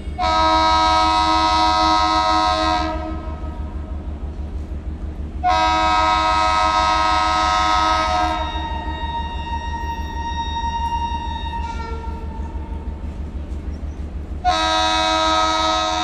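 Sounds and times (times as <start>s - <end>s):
locomotive air horn chord: 0.0s - 4.1s, 5.4s - 13.6s, 14.4s - 16.0s.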